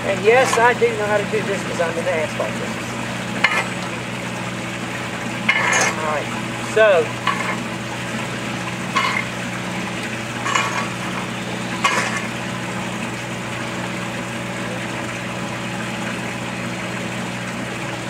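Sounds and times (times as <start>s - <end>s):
steady low hum: 0.0s - 18.0s
rake scraping asphalt: 0.3s - 0.8s, 3.4s - 3.8s, 5.5s - 6.1s, 7.2s - 7.7s, 9.0s - 9.4s, 10.4s - 12.4s.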